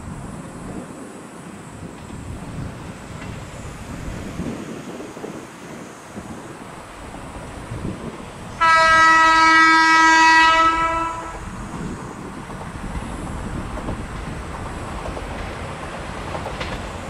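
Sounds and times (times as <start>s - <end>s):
train rumbling: 0.0s - 17.0s
train horn: 8.5s - 11.7s.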